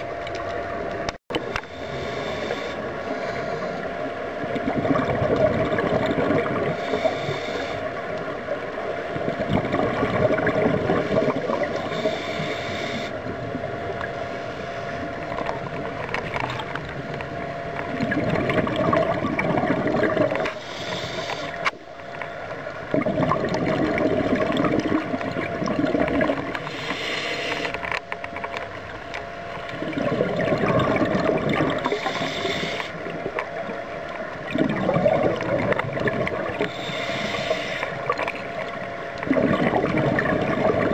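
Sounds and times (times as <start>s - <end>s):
faint steady hum: 0.0s - 40.9s
regulator inhale hiss: 1.5s - 4.2s, 6.6s - 8.2s, 11.0s - 13.3s, 20.4s - 21.8s, 26.6s - 27.9s, 31.8s - 33.1s, 36.5s - 38.1s
gurgling exhaust bubbles: 4.4s - 7.1s, 9.1s - 12.1s, 17.5s - 20.6s, 22.8s - 26.7s, 29.7s - 32.4s, 33.0s - 36.9s, 37.9s - 40.9s.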